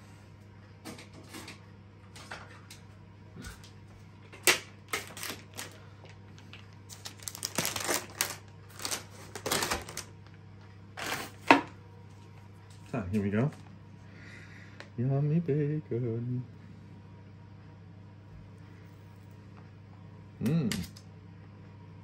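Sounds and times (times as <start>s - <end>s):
low steady hum: 0.0s - 22.0s
knife crackling on plastic packet: 4.4s - 5.8s, 6.9s - 10.1s, 11.0s - 11.6s.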